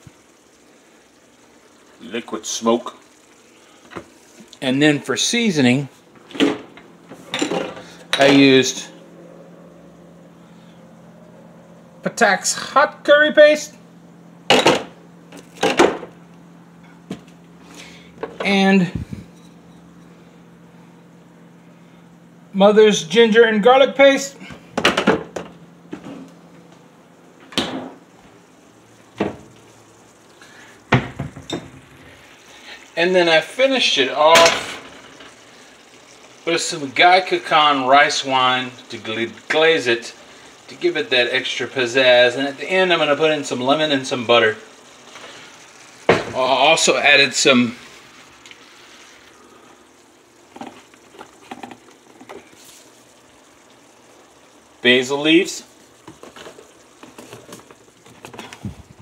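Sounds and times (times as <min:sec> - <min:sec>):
food sizzling in a skillet: 0:00.0 - 0:10.8, 0:28.3 - 0:59.0
knocks and thumps in kitchen: 0:06.2 - 0:08.4, 0:14.5 - 0:16.2, 0:24.5 - 0:26.3, 0:27.5 - 0:28.0, 0:29.1 - 0:29.6, 0:30.9 - 0:32.2, 0:46.0 - 0:46.4.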